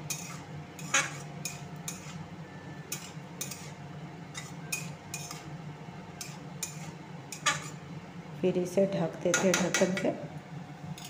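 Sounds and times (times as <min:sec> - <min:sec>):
metal spatula scraping a pan: 0:00.0 - 0:02.3, 0:02.9 - 0:05.5, 0:06.2 - 0:07.8.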